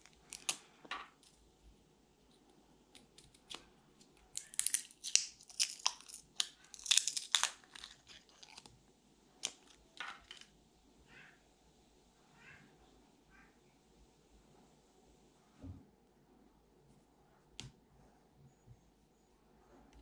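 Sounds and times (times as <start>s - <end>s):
plastic wrap crackling and tearing: 0.0s - 0.7s, 4.3s - 8.7s.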